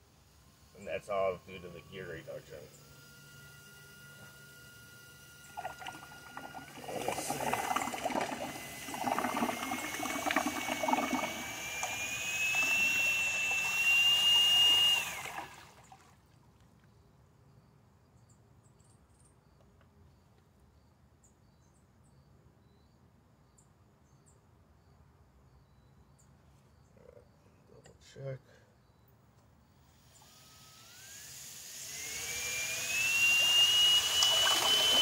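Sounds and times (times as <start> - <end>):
electric motor whining: 0.7 - 15.8, 29.9 - 35.0
propeller splashing water: 5.5 - 16.2, 33.0 - 35.0.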